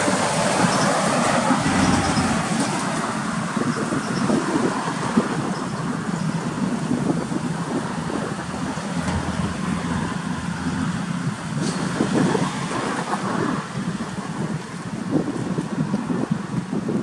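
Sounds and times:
truck engine droning: 0.0 - 13.0
road noise: 0.0 - 17.0
wind on microphone: 0.0 - 17.0.

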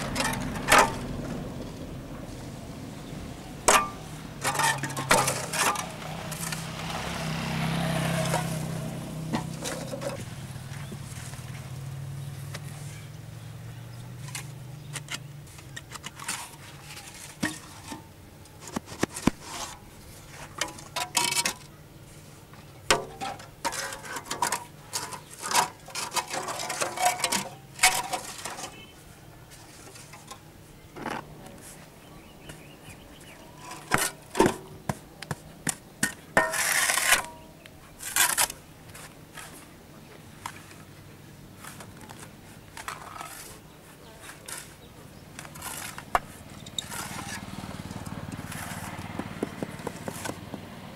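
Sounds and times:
steel mould clanking and scraping: 0.0 - 1.4, 3.6 - 6.7, 8.1 - 11.4, 14.2 - 21.8, 22.9 - 31.4, 32.4 - 39.6, 44.3 - 47.5.

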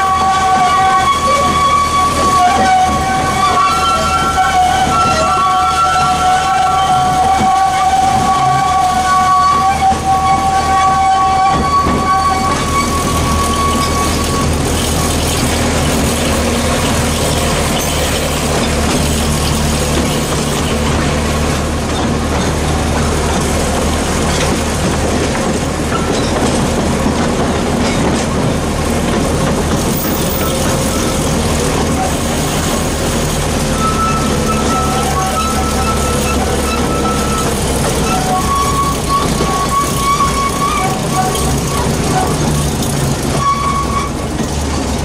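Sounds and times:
sustained high tones: 0.0 - 18.6, 33.7 - 42.0
carriage rumbling on track: 0.0 - 45.0
diesel locomotive running: 0.0 - 45.0.

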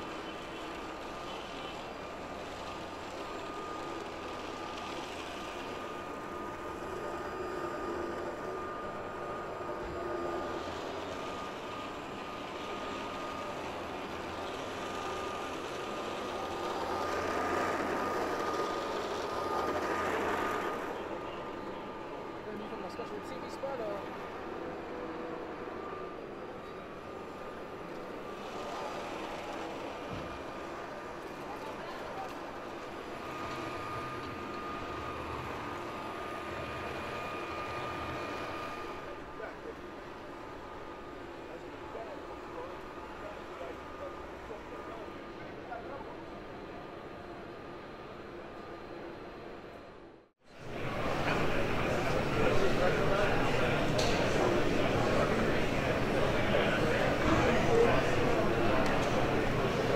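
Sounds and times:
hall background noise: 0.0 - 59.9
exhibition hall din: 50.6 - 59.9.

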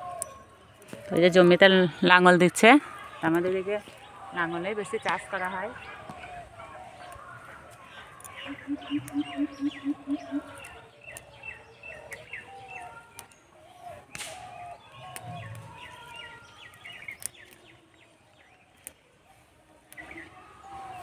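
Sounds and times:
small birds chirping: 0.0 - 21.0
low hooting notes: 8.4 - 10.7.

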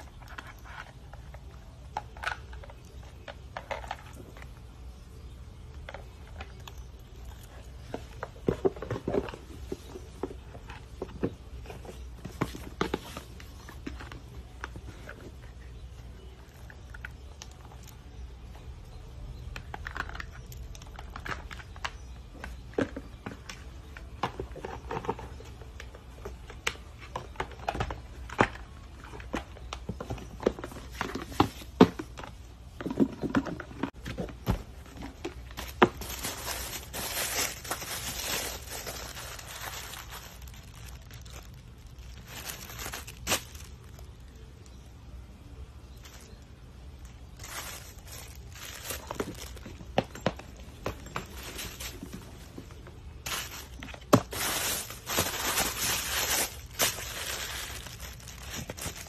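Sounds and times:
tissue paper rustling: 35.5 - 44.0, 47.3 - 49.7, 51.2 - 52.6, 53.2 - 59.0.

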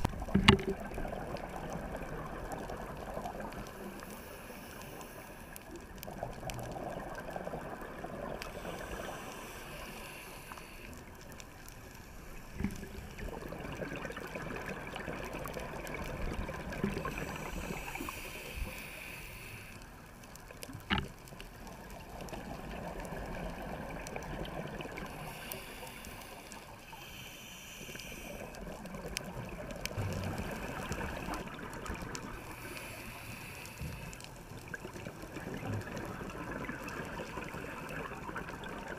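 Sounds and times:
bubbles gurgling underwater: 0.0 - 3.7, 5.9 - 9.2, 12.6 - 18.0, 21.7 - 25.3, 28.6 - 32.5, 34.6 - 38.9
diver breathing through regulator: 8.5 - 11.0, 17.0 - 19.8, 25.1 - 28.7, 32.4 - 34.3.

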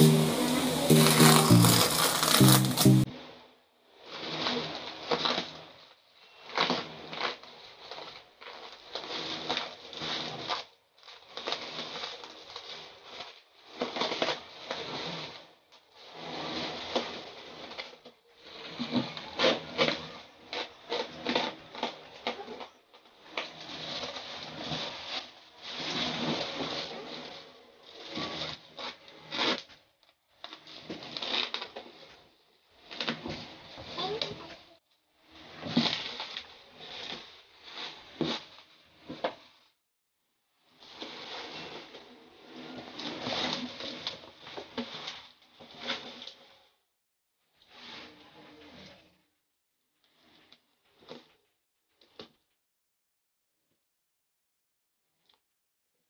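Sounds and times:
plastic crinkling and crackling: 0.9 - 3.1, 28.1 - 32.2.

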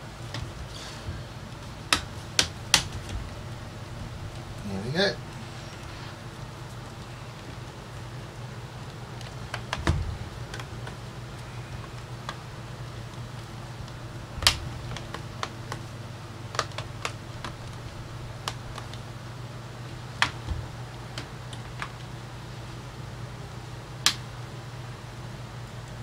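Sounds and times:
steady low hum: 0.0 - 26.0
plastic laptop case clicks and knocks: 1.9 - 3.2, 9.5 - 11.0, 16.5 - 17.8, 20.2 - 20.6.

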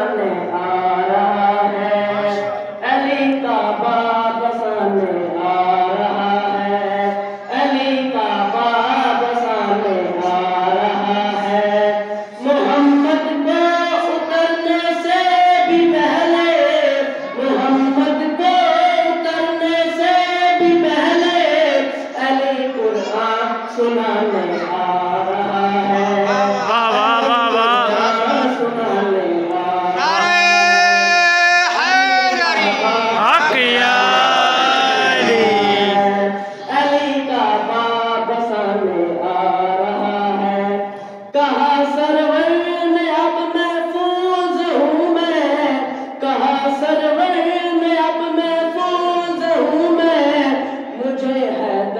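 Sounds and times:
boy singing a chant: 0.0 - 51.9.

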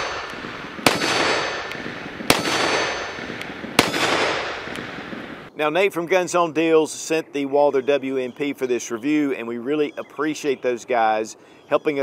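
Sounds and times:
pistol shots: 0.0 - 5.3
gunshot echo: 0.0 - 5.4.

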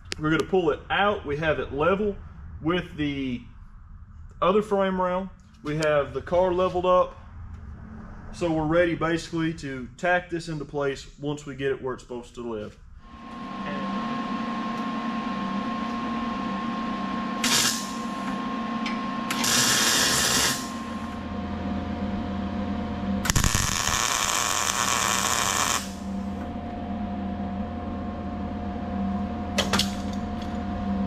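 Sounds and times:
steady machine hum: 0.0 - 31.0
welding arc crackling hiss: 17.4 - 18.2, 19.3 - 21.0, 23.3 - 26.2.

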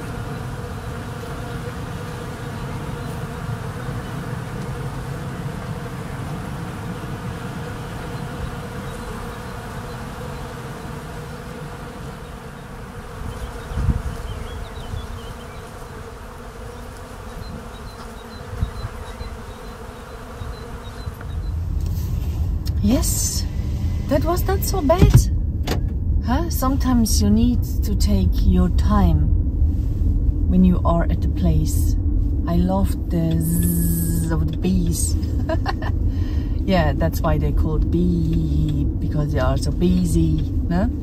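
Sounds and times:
bees buzzing: 0.0 - 28.9, 30.5 - 41.0
low thump: 25.0 - 26.2.

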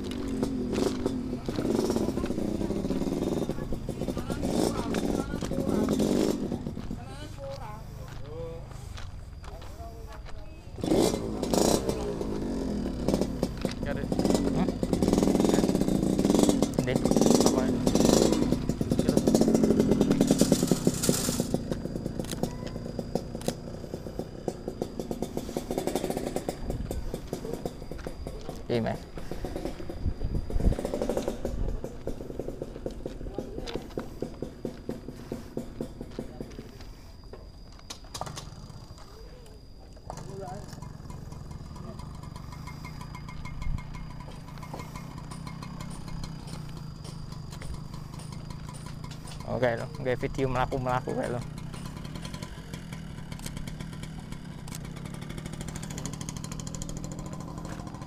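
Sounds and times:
vehicle engine running: 0.0 - 58.0
faint high chirps: 9.2 - 10.8.

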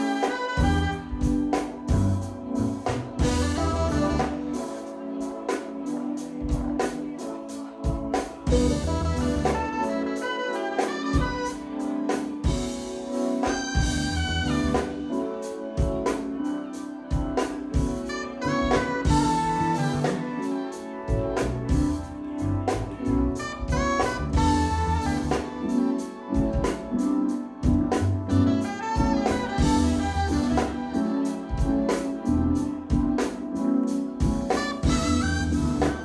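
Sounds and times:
drum kit beat: 0.0 - 16.5, 17.1 - 36.0
keyboards: 0.0 - 36.0
saxophone: 0.0 - 36.0
electric bass: 0.6 - 4.5, 8.5 - 9.8, 13.8 - 15.1, 18.4 - 20.2, 21.1 - 25.6, 27.7 - 31.0, 31.7 - 33.2, 34.8 - 36.0.

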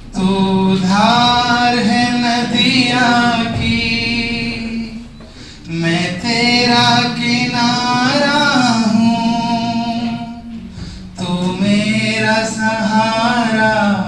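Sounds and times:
man singing unaccompanied: 0.0 - 14.0
singer breathing: 5.2 - 5.7, 10.7 - 11.2.

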